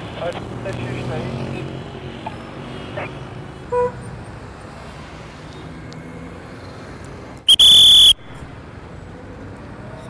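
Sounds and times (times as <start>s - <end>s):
street traffic: 0.0s - 10.0s
shrill whistle blast: 7.5s - 8.4s.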